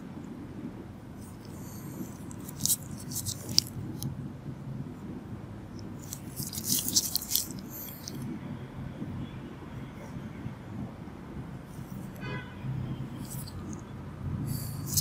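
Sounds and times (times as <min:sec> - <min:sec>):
low room noise: 0:00.0 - 0:15.0
high scratching clicks: 0:01.2 - 0:04.1, 0:05.8 - 0:08.3, 0:13.2 - 0:13.9, 0:14.5 - 0:15.0.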